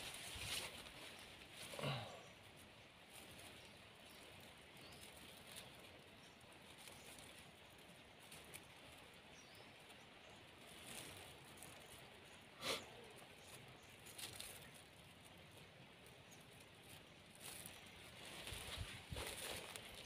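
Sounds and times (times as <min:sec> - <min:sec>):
sharp rustle: 0:00.0 - 0:01.8, 0:16.8 - 0:20.0.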